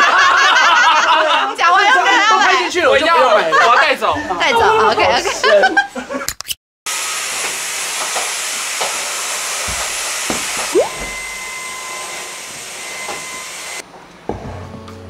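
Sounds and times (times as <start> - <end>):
short rising whistle: 10.7 - 12.0.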